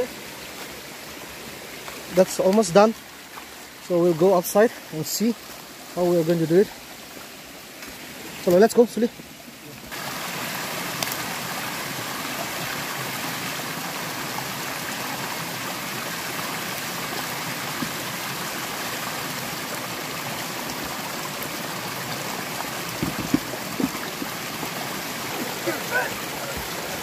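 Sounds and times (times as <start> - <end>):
stream rushing over stones: 0.0 - 27.0
low thumps: 22.9 - 24.7.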